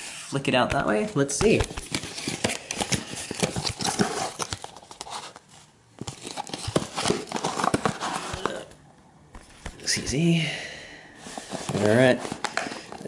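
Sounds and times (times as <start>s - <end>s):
cardboard packaging crackling: 1.5s - 8.7s.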